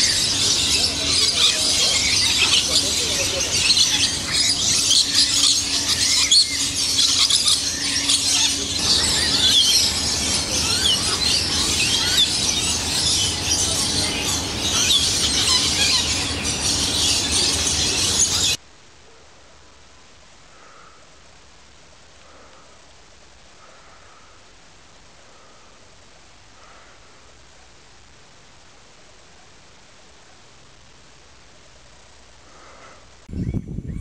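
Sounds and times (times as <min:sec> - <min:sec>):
parrots chattering and screeching: 0:00.0 - 0:18.6.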